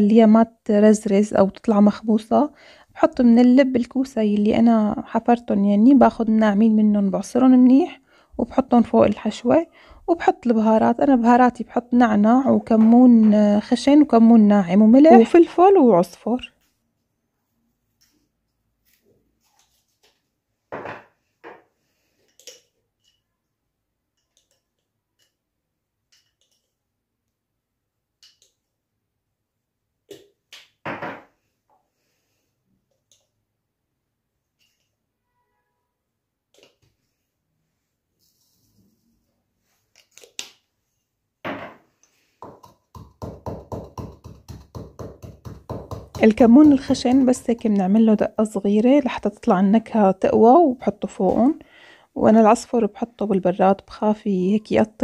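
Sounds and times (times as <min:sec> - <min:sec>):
pestle pounding in wooden mortar: 0:42.4 - 0:47.6.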